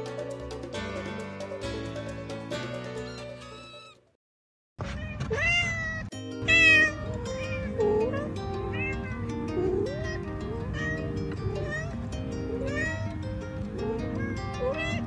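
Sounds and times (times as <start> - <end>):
background music: 0.0 - 4.1, 6.1 - 15.0
cats meowing: 3.1 - 4.0, 4.8 - 15.0.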